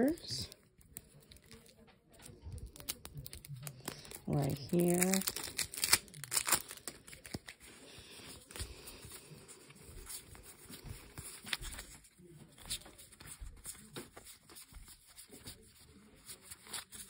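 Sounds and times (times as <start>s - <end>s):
cards being handled: 0.0s - 17.0s.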